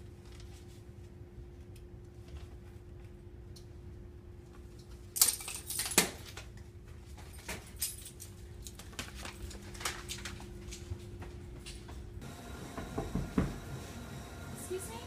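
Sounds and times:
faint building hum: 0.0 - 15.0
keys jangling: 5.2 - 6.1, 7.4 - 8.8.

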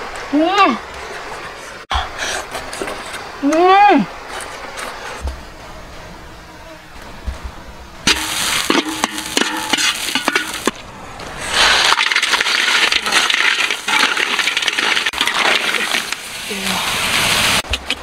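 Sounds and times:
metal spatula scraping a wok: 8.1 - 10.8.

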